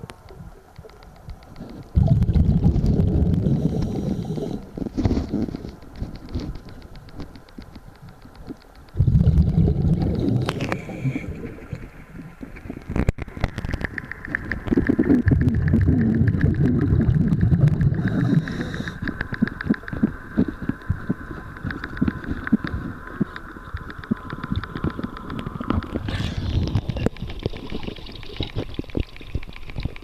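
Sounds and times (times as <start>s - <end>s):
faint rapid clicking: 0.0s - 30.0s
air bubbling underwater: 2.0s - 4.6s, 9.0s - 13.3s, 14.4s - 19.0s, 24.5s - 29.5s.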